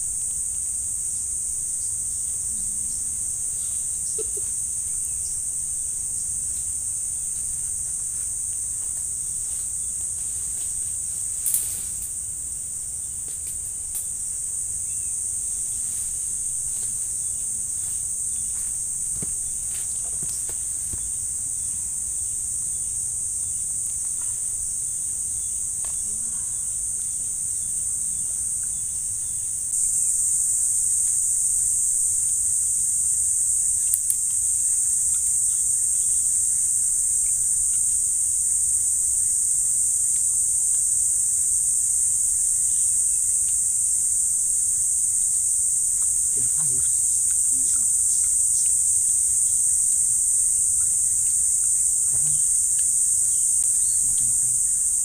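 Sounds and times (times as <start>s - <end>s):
insect chorus drone: 0.0s - 55.0s.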